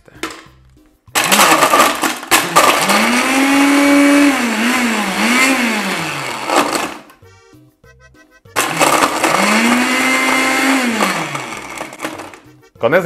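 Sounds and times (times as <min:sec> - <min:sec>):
blender crushing ice: 0:01.1 - 0:07.2, 0:08.6 - 0:12.5.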